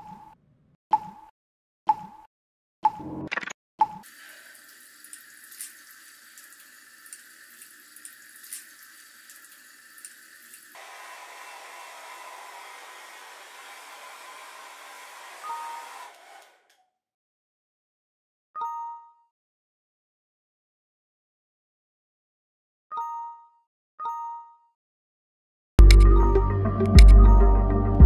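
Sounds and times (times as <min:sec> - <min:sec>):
shower water spattering: 0:04.0 - 0:10.9
hair dryer blowing: 0:10.7 - 0:16.8.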